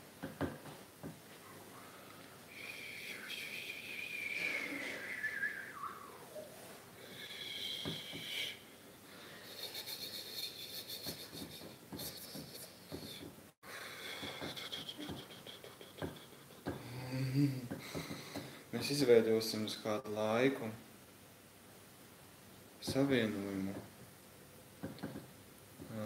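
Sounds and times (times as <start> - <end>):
falling whistle: 2.6 - 6.6, 7.4 - 8.6
man wheezing breath: 4.3 - 5.3, 13.0 - 18.6.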